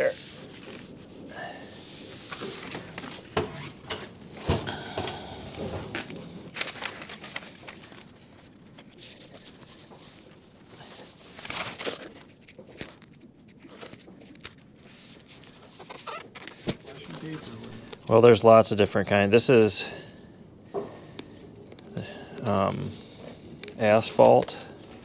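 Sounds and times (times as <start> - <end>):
tape rubbing and crinkling: 0.0 - 4.4, 5.5 - 18.0.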